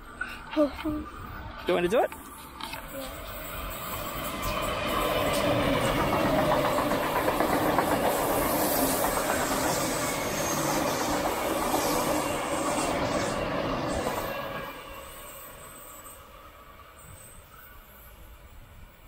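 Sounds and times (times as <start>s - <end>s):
electric train rolling on rails: 0.0s - 19.0s.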